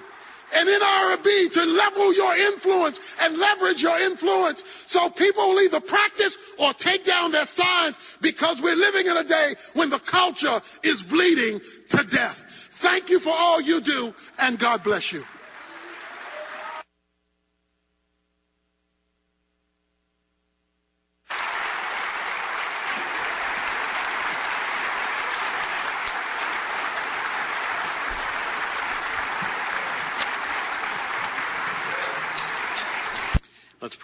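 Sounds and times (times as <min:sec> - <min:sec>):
crowd applauding: 0:00.0 - 0:01.4, 0:14.6 - 0:16.9, 0:21.3 - 0:33.4.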